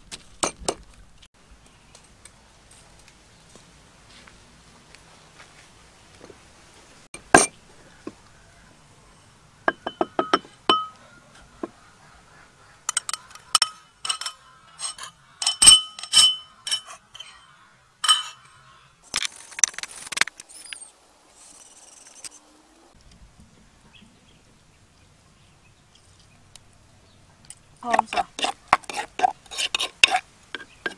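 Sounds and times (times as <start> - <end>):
utensils clinking on container: 12.9 - 17.4, 18.0 - 18.6.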